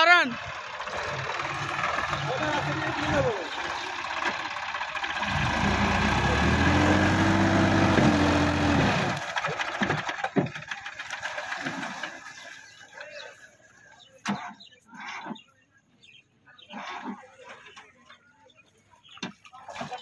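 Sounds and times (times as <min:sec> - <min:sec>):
tractor diesel engine under load: 0:00.0 - 0:12.5.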